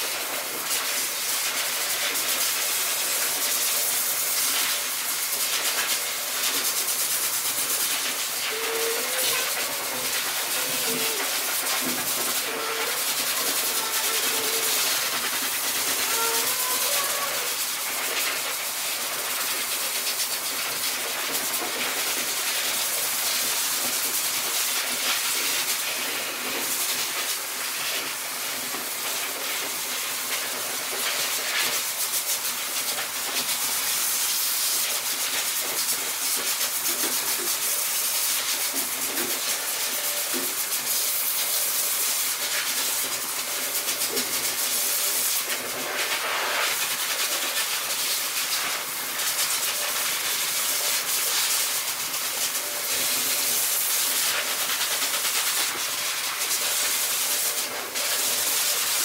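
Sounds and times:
electric clippers shearing fur: 8.4s - 17.5s.

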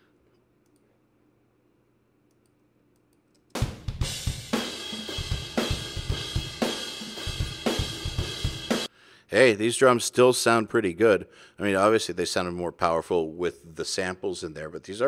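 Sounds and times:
drum kit playing a steady beat: 3.5s - 8.9s.

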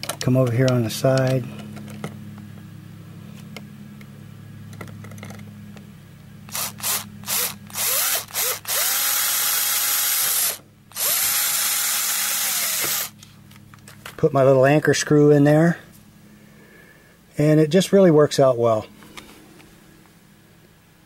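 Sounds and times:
cordless drill whining: 6.5s - 13.2s.

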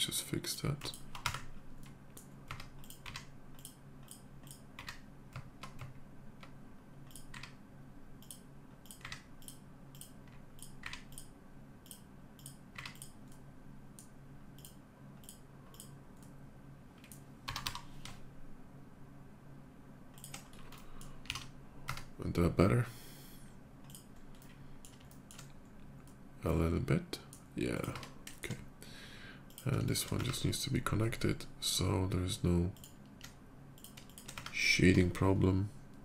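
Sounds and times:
faint low hum: 0.0s - 36.0s
keyboard and mouse clicking: 0.8s - 7.6s, 8.2s - 13.4s, 14.0s - 16.4s, 17.0s - 18.2s, 20.2s - 22.1s, 23.8s - 26.2s, 29.5s - 30.5s, 32.8s - 34.6s.

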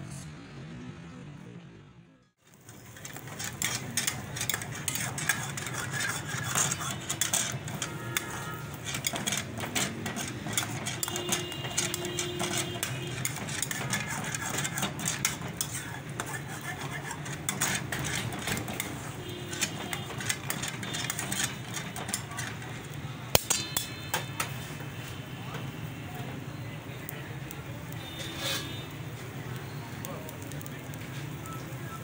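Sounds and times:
chicken sizzling in hot oil: 2.4s - 32.0s
tongs clinking against pan: 2.7s - 24.6s.

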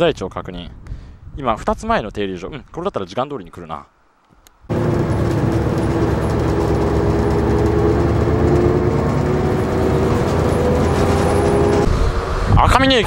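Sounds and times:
faint whine rising in pitch: 4.7s - 12.4s
bus engine and road rumble: 4.7s - 13.0s.

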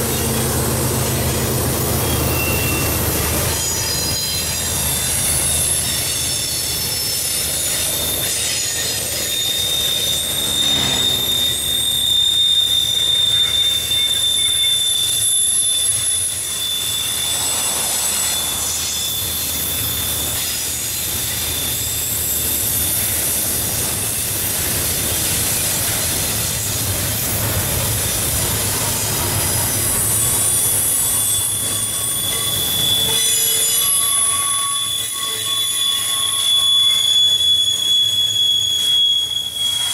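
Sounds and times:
freight train rumble on rails: 0.0s - 39.9s
train wheels squealing: 0.0s - 39.9s.

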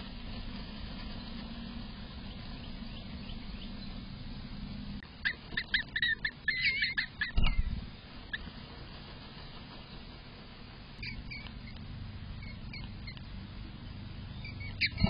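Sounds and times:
steady low hum: 0.0s - 15.0s
bird chirping and twittering: 2.2s - 8.5s, 11.0s - 11.8s, 12.4s - 15.0s.

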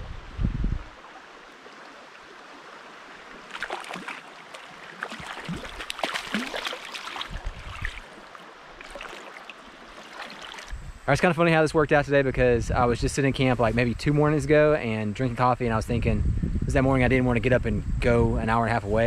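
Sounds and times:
small stream flowing: 0.0s - 10.8s
water splashing and sloshing: 0.8s - 10.8s.

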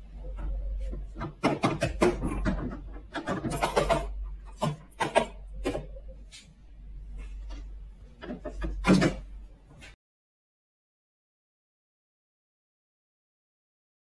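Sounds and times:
plastic toys scraping on table: 0.5s - 6.5s
plastic doors clacking shut: 0.8s - 6.0s, 8.2s - 9.4s.

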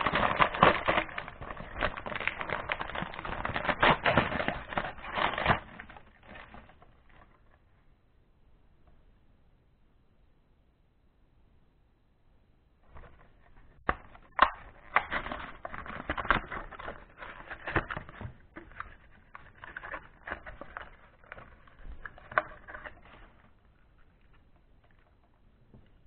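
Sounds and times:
blister pack tearing and crinkling: 0.0s - 6.8s, 13.8s - 23.5s.

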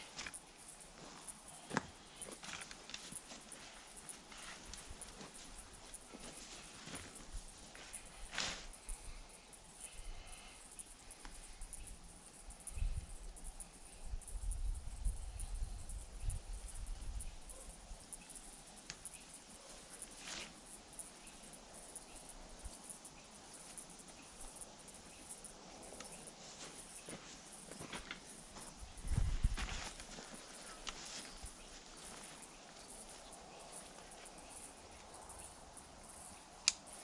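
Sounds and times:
insects chirring: 0.0s - 37.0s
tent rustling: 2.3s - 8.8s, 26.3s - 33.2s.

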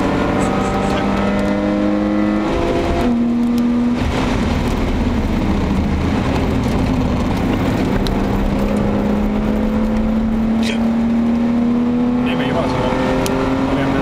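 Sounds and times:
car engine under load: 0.0s - 14.0s
wind and tyre rush: 0.0s - 14.0s.

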